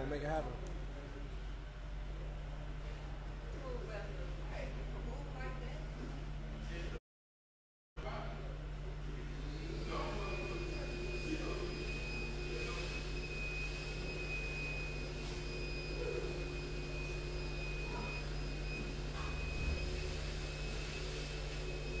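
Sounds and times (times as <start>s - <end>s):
high-pitched whine: 9.1s - 22.0s
low hum: 15.0s - 22.0s.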